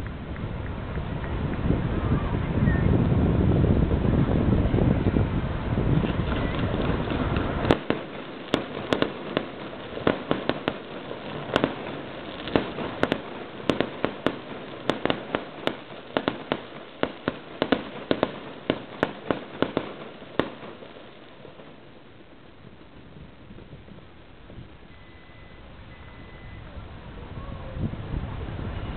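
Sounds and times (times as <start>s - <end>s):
fireworks rushing noise: 0.0s - 28.9s
fireworks popping and banging: 5.6s - 24.8s.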